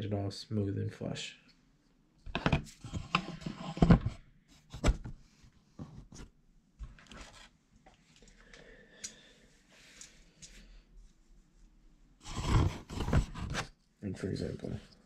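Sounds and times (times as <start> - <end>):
rubbing sounds and clicks: 2.3 - 5.2.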